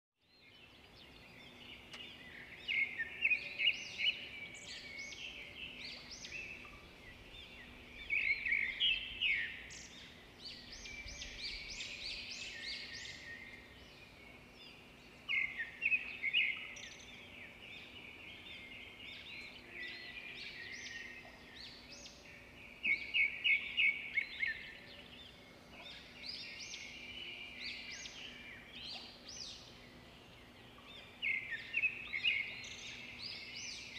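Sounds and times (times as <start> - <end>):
songbird chirping and trilling: 0.2 - 33.9.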